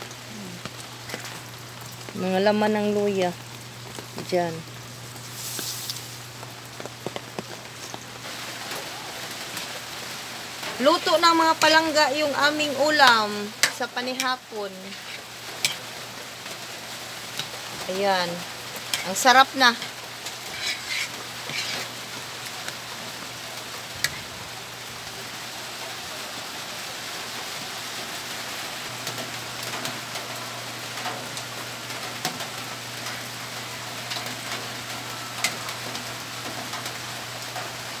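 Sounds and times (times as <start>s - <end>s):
steady rain: 0.0s - 38.0s.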